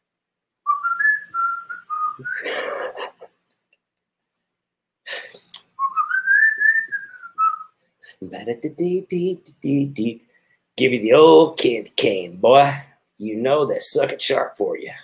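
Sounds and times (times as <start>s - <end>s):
man whistling: 0.7s - 2.5s, 5.3s - 7.8s.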